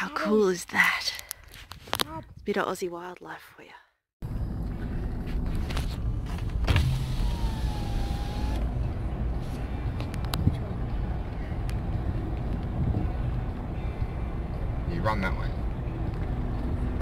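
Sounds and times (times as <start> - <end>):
car engine and tyres rumbling: 4.2 - 17.0
electric window whine: 6.7 - 8.8.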